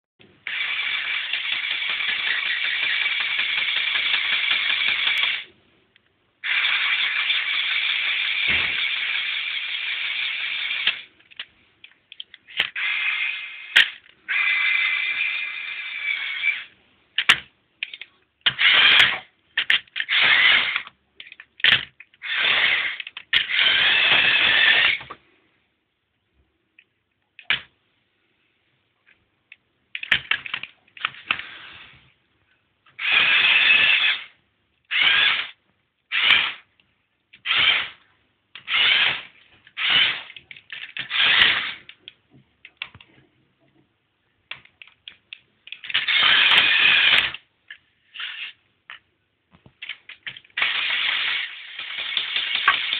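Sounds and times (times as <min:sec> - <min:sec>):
electric motors and gears whirring: 0:00.4 - 0:05.5, 0:06.4 - 0:11.1, 0:12.5 - 0:16.7, 0:18.5 - 0:19.3, 0:20.0 - 0:20.9, 0:21.6 - 0:25.1, 0:33.0 - 0:36.7, 0:37.4 - 0:38.0, 0:38.6 - 0:42.0, 0:45.7 - 0:47.4, 0:50.6 - 0:52.9.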